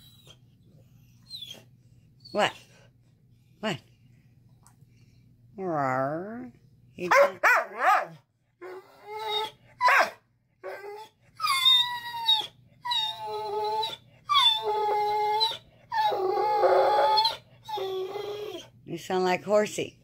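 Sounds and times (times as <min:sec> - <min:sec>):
dog whining and howling: 0:00.0 - 0:02.6, 0:07.4 - 0:18.8.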